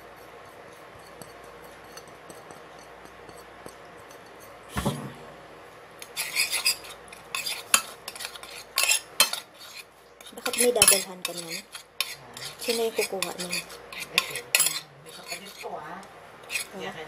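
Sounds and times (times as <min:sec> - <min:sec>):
utensil scraping ceramic plate: 0:00.0 - 0:04.7, 0:06.0 - 0:15.8, 0:16.4 - 0:17.0
dull thump: 0:04.7 - 0:05.2.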